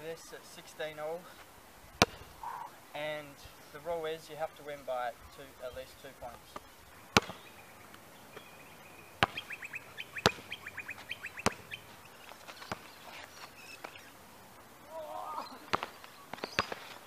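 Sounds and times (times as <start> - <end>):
bird chirping: 1.8 - 17.0
basketball bouncing on asphalt: 2.0 - 2.3, 6.5 - 8.5, 9.1 - 14.1, 15.7 - 17.0.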